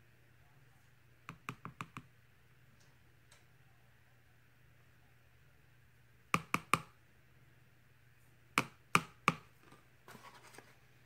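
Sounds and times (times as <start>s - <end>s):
spoon tapping plastic tub: 1.3s - 2.1s, 6.4s - 7.0s, 8.6s - 9.5s.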